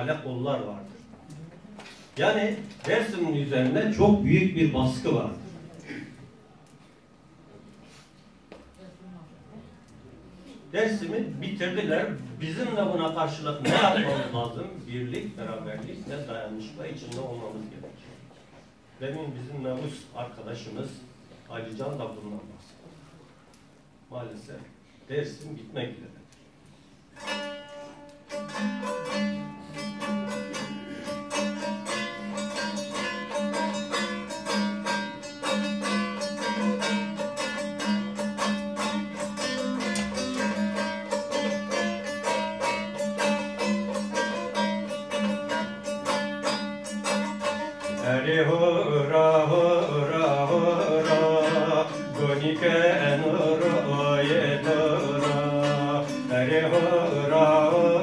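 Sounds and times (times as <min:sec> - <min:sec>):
plucked string instrument strumming: 0:27.2 - 0:58.0
person singing: 0:47.8 - 0:58.0.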